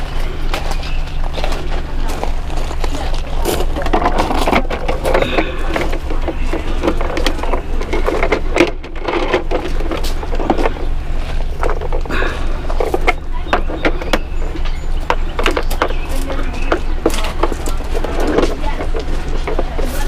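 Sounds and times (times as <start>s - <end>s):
footsteps on gravel: 0.0s - 20.0s
steady low hum: 0.0s - 20.0s
plastic toy clattering: 3.4s - 10.8s.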